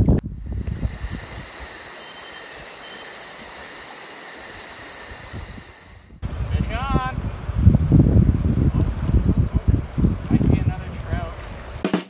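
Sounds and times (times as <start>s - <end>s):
wind rumble on microphone: 0.0s - 1.7s, 5.1s - 11.8s
high-pitched insect chirping: 0.3s - 6.2s.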